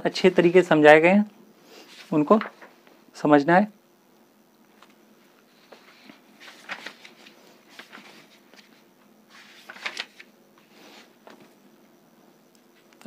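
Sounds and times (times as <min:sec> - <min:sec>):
paper pages rustling: 0:01.9 - 0:02.8, 0:05.6 - 0:11.6.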